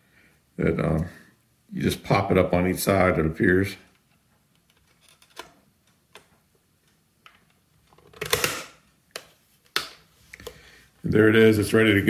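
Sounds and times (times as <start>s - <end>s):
plastic clicks: 3.9s - 10.6s.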